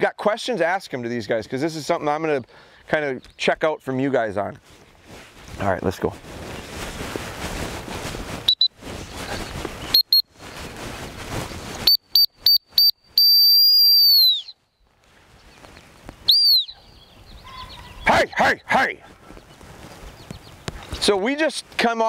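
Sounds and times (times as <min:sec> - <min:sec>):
rustling noise: 0:04.5 - 0:12.6, 0:14.8 - 0:16.3, 0:19.0 - 0:22.0
dog training whistle pips: 0:11.8 - 0:14.5, 0:16.3 - 0:16.8.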